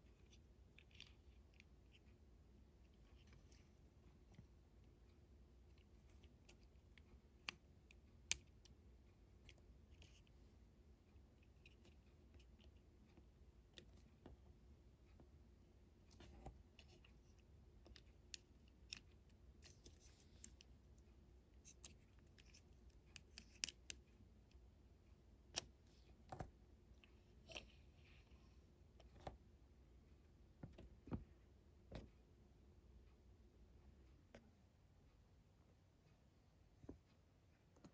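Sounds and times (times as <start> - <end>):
plastic clicks and scratching: 21.6 - 24.2.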